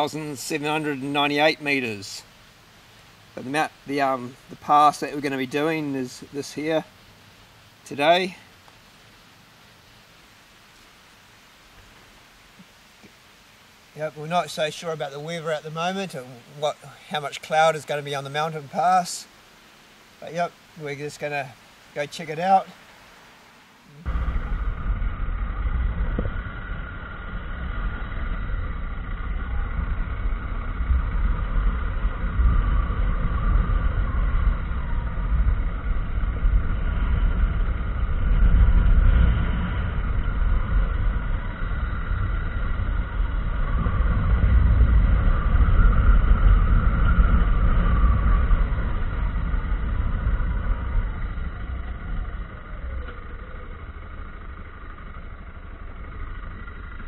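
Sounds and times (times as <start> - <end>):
motorcycle engine rumbling: 23.8 - 57.0.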